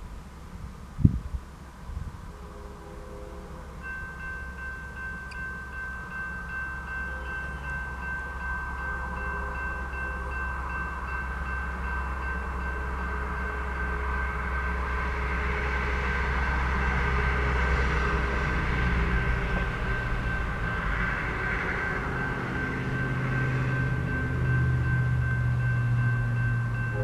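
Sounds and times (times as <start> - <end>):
train rumble: 0.0 - 27.0
crossing warning bell ringing: 3.3 - 27.0.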